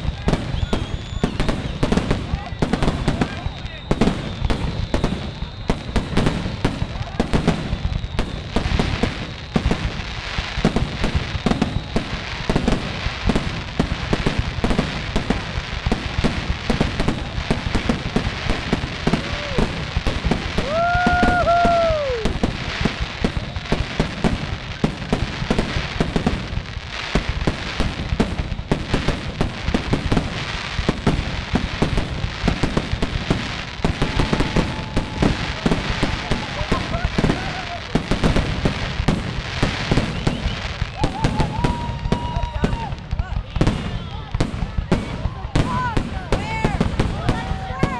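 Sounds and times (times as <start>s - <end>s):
firework whistle: 0.0s - 44.2s
fireworks bursting and crackling: 0.0s - 47.9s.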